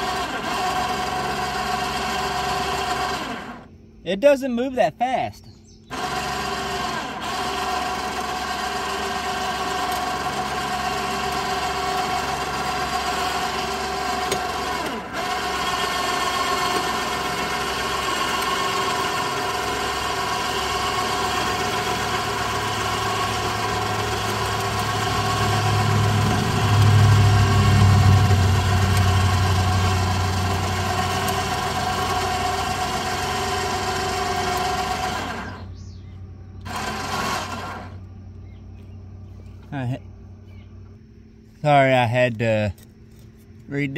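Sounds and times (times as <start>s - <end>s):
winch motor whining: 0.0s - 4.1s, 5.5s - 41.0s
deep low hum: 23.1s - 33.0s.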